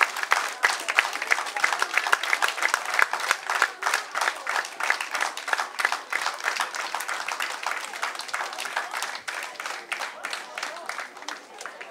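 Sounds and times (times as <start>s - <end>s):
audience applauding: 0.0s - 11.9s.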